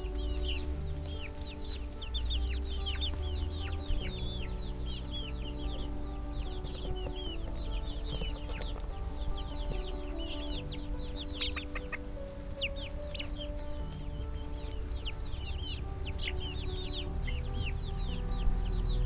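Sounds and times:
chicks peeping: 0.0s - 19.0s.

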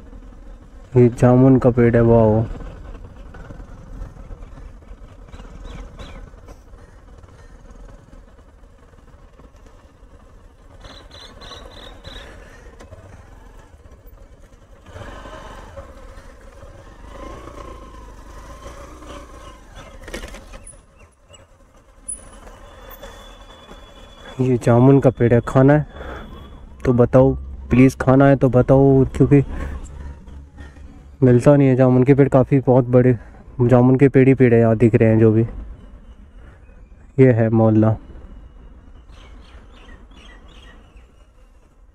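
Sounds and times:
motorcycle engine running: 0.0s - 33.4s.

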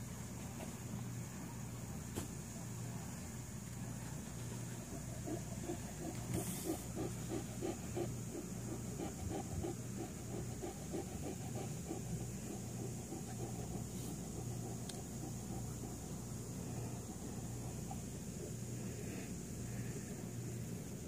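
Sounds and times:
dog mouth or breath sounds: 5.0s - 16.2s.

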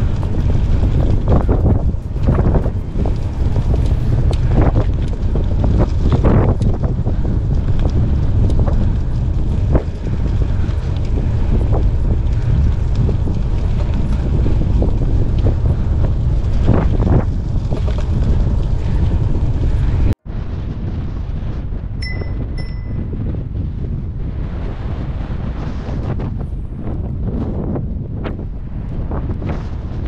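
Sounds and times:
tyre noise on asphalt: 0.0s - 30.0s
wind buffeting microphone: 0.0s - 30.0s.

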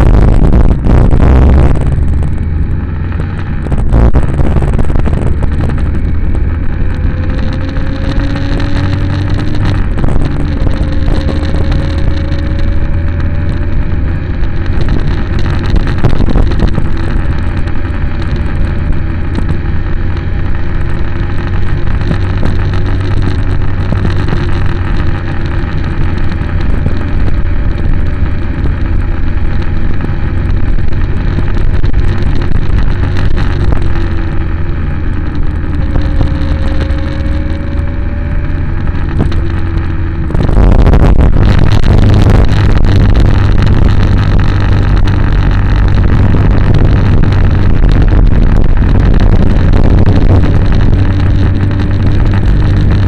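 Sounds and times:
road noise: 0.0s - 53.0s
vehicle engine running: 0.0s - 53.0s
wind noise: 0.0s - 53.0s.

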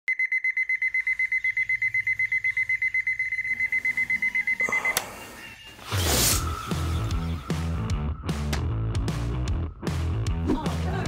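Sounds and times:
alarm clock beeping rapidly: 0.1s - 5.7s.

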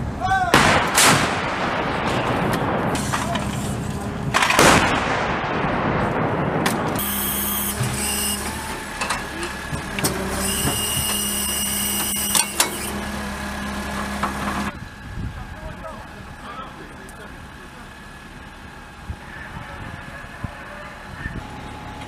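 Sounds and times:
rumbling echo of artillery shot: 0.5s - 7.0s
diesel engine running: 1.0s - 22.0s
high whine: 1.5s - 22.0s.

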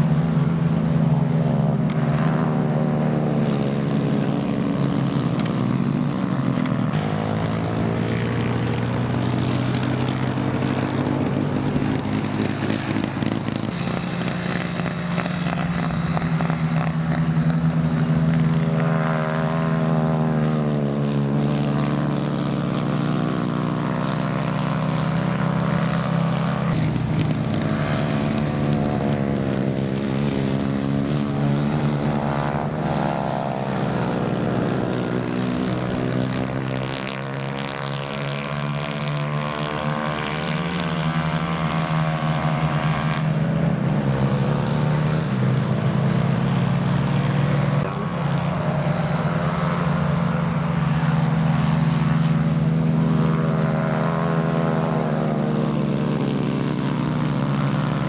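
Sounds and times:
kart engines racing: 0.0s - 58.0s.

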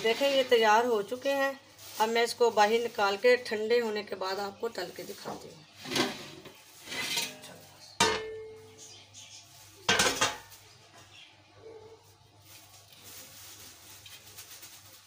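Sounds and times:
metal pot clatter: 5.8s - 8.6s, 9.9s - 10.6s
metal pot lid clanking: 8.0s - 8.5s, 9.9s - 10.5s.

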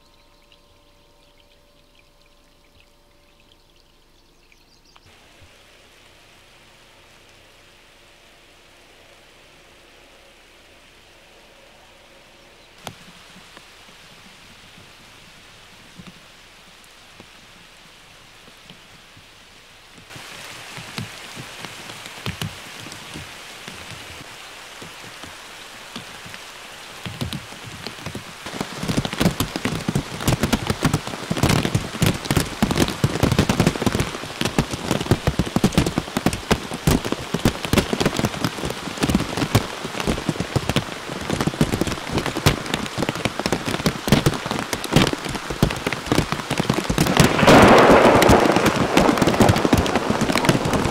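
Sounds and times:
hailstones falling on branches: 20.0s - 50.9s.

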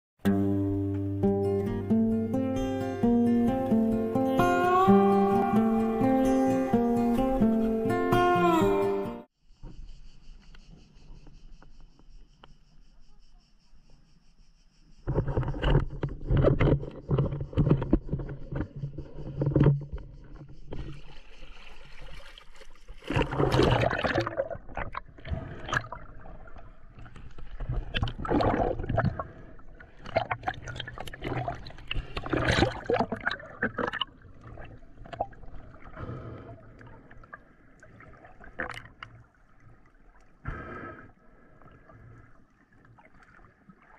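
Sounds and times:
water sloshing and splashing: 15.1s - 40.4s, 41.1s - 43.9s.

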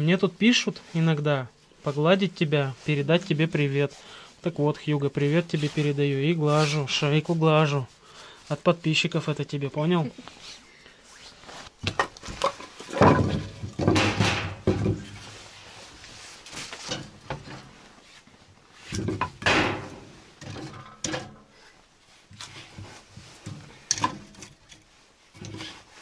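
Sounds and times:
firewood knocking and clattering: 11.8s - 15.4s, 16.6s - 17.8s, 18.9s - 21.5s, 23.2s - 24.8s.

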